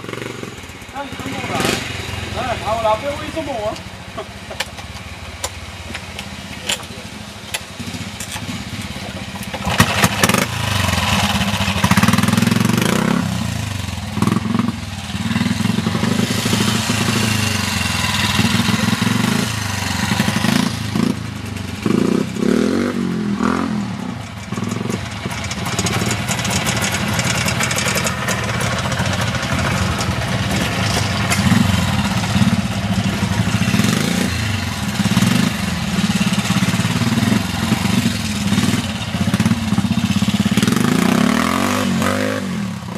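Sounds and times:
motorcycle engines revving: 0.0s - 42.9s.

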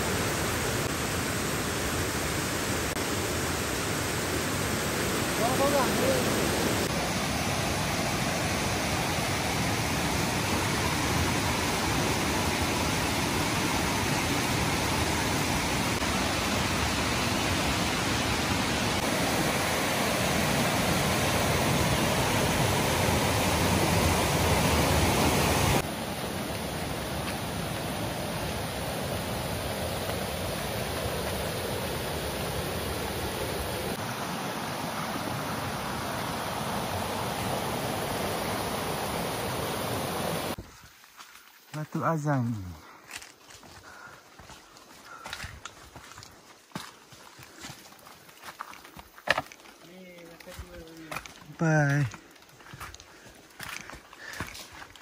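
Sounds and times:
gentle stream flowing: 0.0s - 40.6s
river rushing over boulders: 0.0s - 40.6s.

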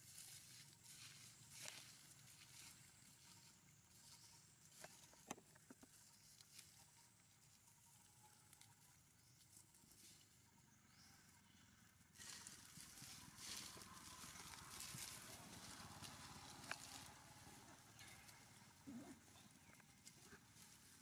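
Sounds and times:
crackling of dry leaf litter: 12.0s - 21.0s.

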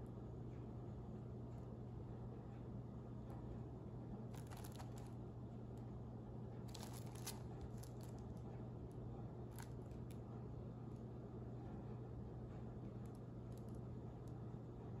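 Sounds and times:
steady low hum: 0.0s - 15.0s
plastic wrap crinkling: 4.4s - 5.2s, 6.7s - 8.3s.

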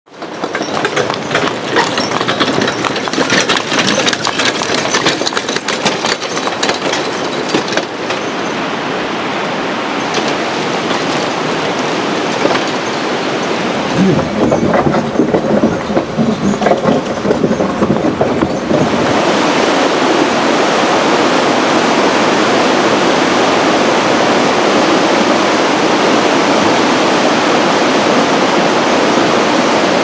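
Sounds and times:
wooden cart rattling on gravel: 0.1s - 8.7s, 10.0s - 19.8s
steady rushing noise: 0.2s - 30.0s.

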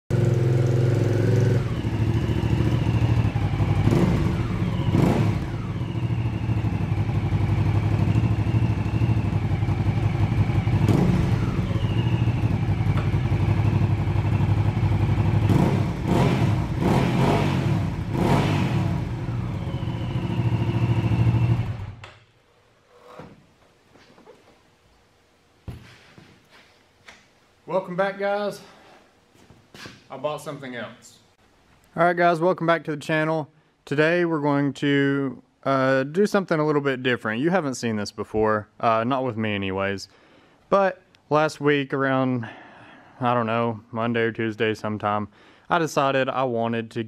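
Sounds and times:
motorcycle engine running: 0.1s - 22.0s.

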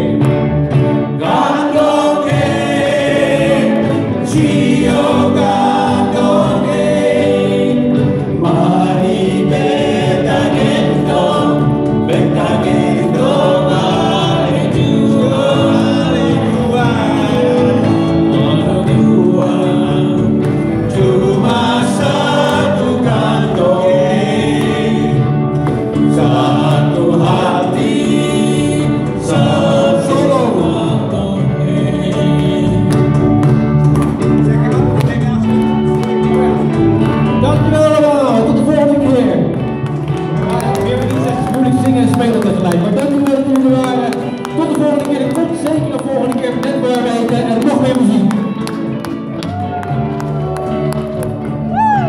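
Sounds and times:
group singing along: 0.0s - 35.0s
live band with guitars: 0.0s - 52.0s.

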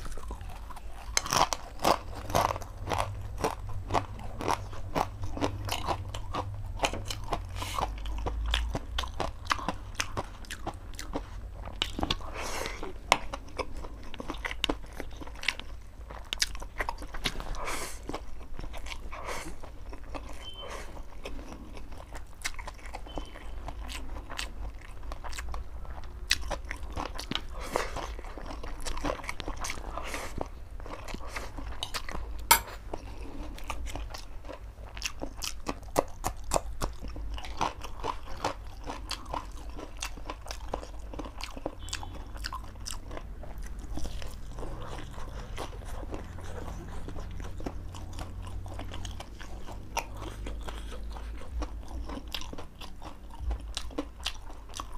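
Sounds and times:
low steady hum: 0.0s - 54.9s
wet chewing: 0.0s - 54.9s.

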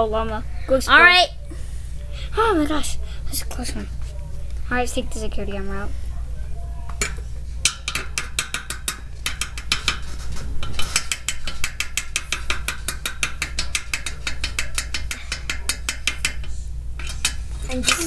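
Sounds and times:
rapid ratchet-like clicking: 7.7s - 18.0s.

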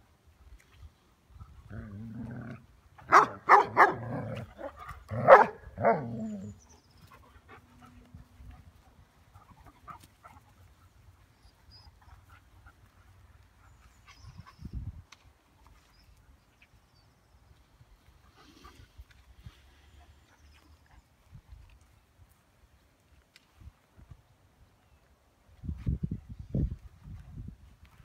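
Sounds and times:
dogs barking sharply: 3.0s - 6.2s
faint rustles and ticks: 6.9s - 26.0s.

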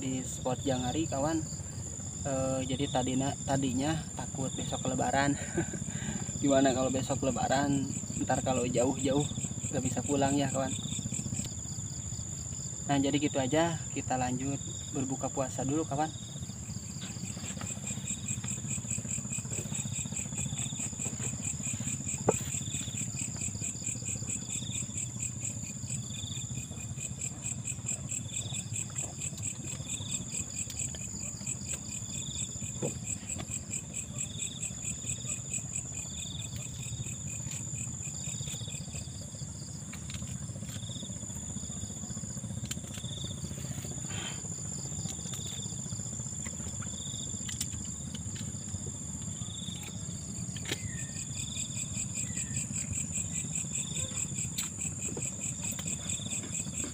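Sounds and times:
insect chirping: 0.0s - 56.9s
insect high-pitched trill: 0.0s - 56.9s
low steady hum: 0.0s - 56.9s.

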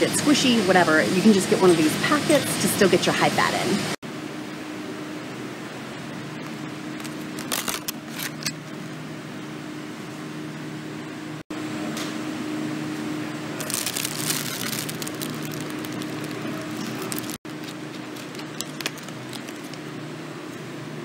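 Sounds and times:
low store hum: 0.0s - 21.0s
plastic packaging crinkling: 7.0s - 8.4s, 13.6s - 20.0s.

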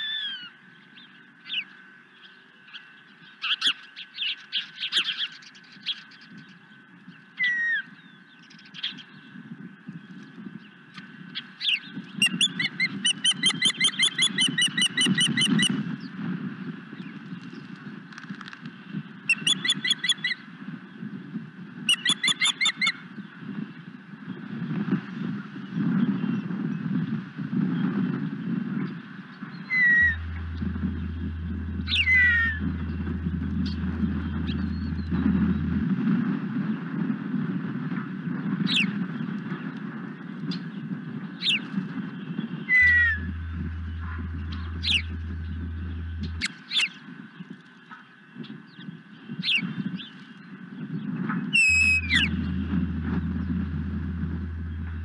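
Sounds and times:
bird whistled chirps: 12.2s - 15.8s, 19.3s - 20.3s, 21.9s - 23.0s, 42.8s - 43.9s, 51.6s - 52.4s
steady low rumble: 29.9s - 36.3s, 42.8s - 46.5s, 51.6s - 55.0s
loud low hum: 29.9s - 36.4s, 42.8s - 46.6s, 51.6s - 55.0s.

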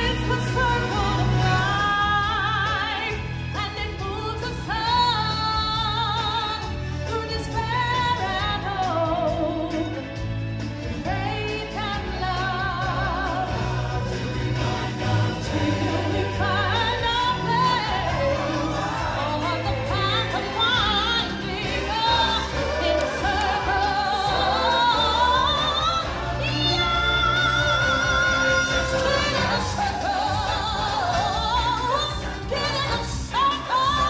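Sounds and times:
band backing with bass: 0.0s - 34.0s
voices singing with vibrato: 10.9s - 34.0s.

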